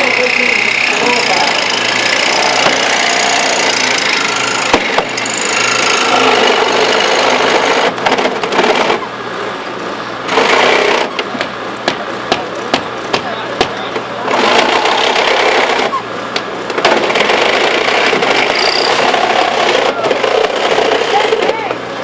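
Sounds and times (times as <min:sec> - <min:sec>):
reciprocating saw cutting metal: 0:00.0 - 0:09.1, 0:16.9 - 0:21.4
steady engine hum: 0:00.0 - 0:22.0.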